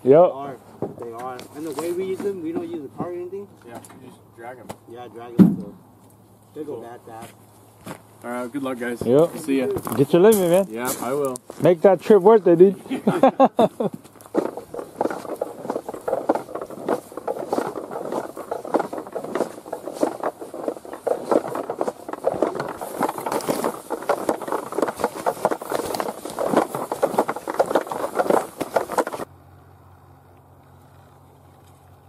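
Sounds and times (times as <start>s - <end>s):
footsteps through grass and brush: 9.1s - 29.3s
clothing brushing microphone: 14.3s - 29.3s.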